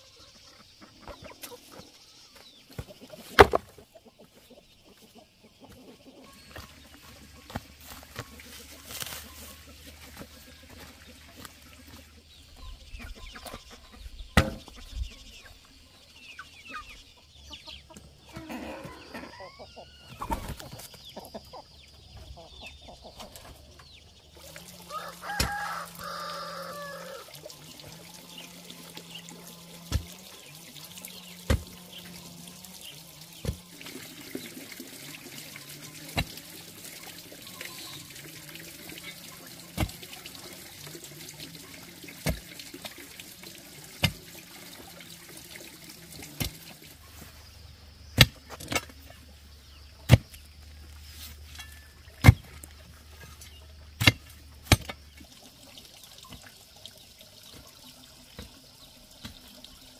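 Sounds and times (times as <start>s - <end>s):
water trickling into a basin: 0.0s - 59.9s
iron bar striking stony ground: 3.3s - 3.7s, 14.4s - 14.7s, 31.5s - 31.8s, 48.2s - 49.0s, 54.0s - 55.0s.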